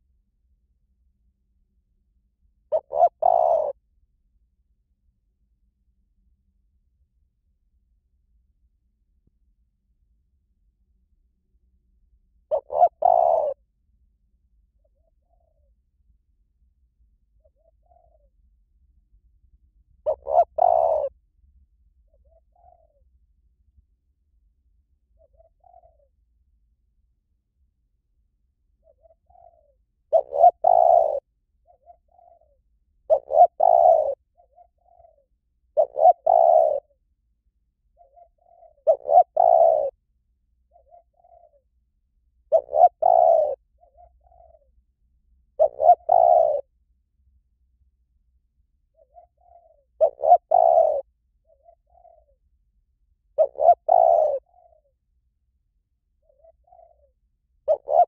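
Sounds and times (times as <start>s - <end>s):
dove cooing: 2.7s - 3.8s, 12.5s - 13.6s, 14.8s - 15.8s, 17.4s - 18.4s, 20.0s - 21.2s, 22.1s - 23.0s, 25.2s - 26.2s, 28.8s - 37.0s, 38.0s - 40.0s, 40.7s - 41.7s, 42.5s - 44.8s, 45.6s - 46.7s, 48.9s - 52.4s, 53.4s - 54.9s, 56.2s - 58.0s.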